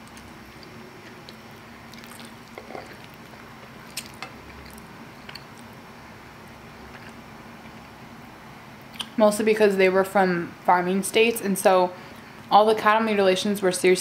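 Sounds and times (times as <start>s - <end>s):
wet chewing mouth sounds: 0.1s - 5.6s.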